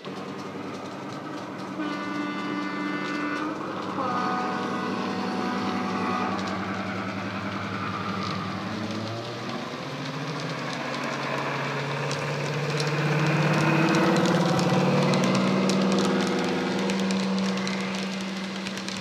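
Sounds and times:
diesel locomotive engine running: 0:00.0 - 0:19.0
two-tone train horn: 0:01.6 - 0:07.1, 0:14.7 - 0:18.5.

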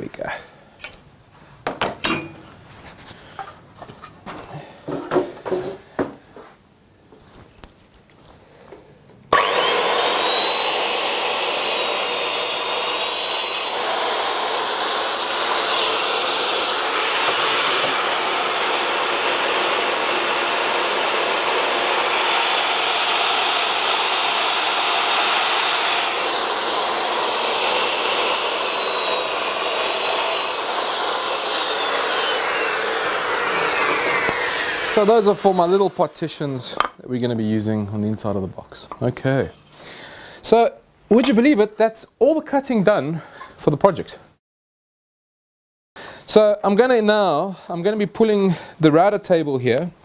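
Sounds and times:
circular saw whining: 0:09.3 - 0:36.8.

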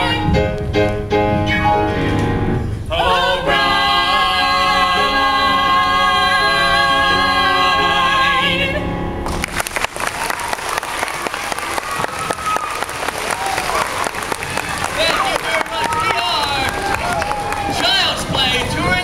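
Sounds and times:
voices singing in harmony: 0:02.9 - 0:09.0
audience applause: 0:09.3 - 0:19.0.

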